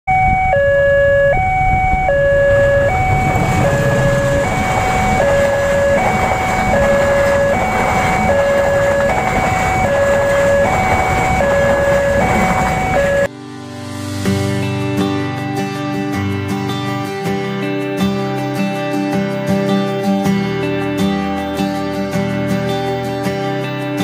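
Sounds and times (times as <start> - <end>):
two-tone crossing alarm: 0.1 - 13.3
train rumbling past: 2.0 - 13.3.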